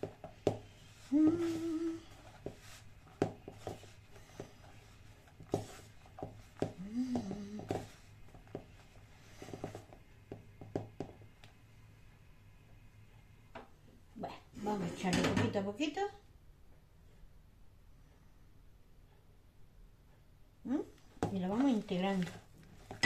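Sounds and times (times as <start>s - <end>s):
hands kneading dough in bowl: 0.0s - 11.6s, 21.1s - 23.0s
woman humming: 1.1s - 2.2s, 6.8s - 7.8s.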